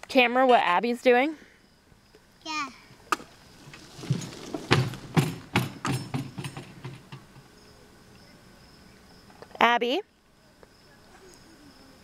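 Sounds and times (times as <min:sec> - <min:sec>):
horse knocking an object: 0:03.1 - 0:07.5.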